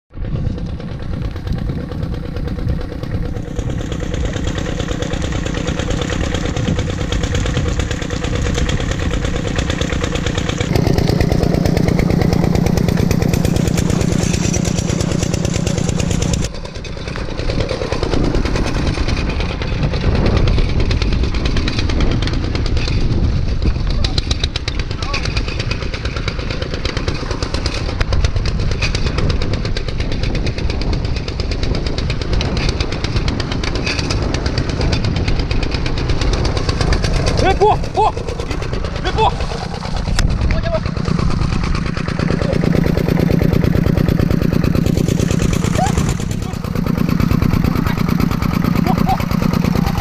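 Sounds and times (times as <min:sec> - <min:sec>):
diesel tractor engine running: 0:00.1 - 0:50.0.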